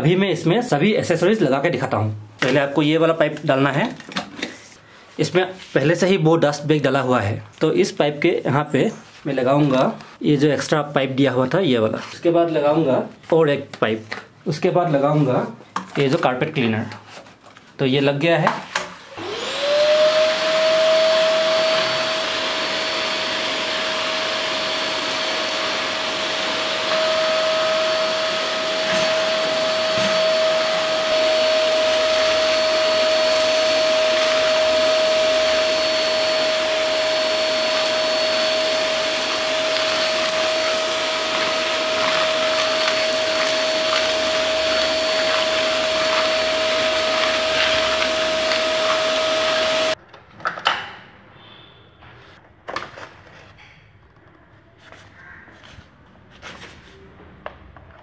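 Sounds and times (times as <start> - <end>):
vacuum cleaner motor whine: 19.0 - 50.0.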